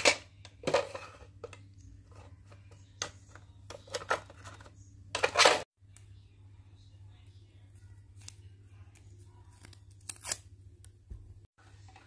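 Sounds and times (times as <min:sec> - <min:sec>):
hand rummaging in plastic drawer: 0:03.7 - 0:05.7.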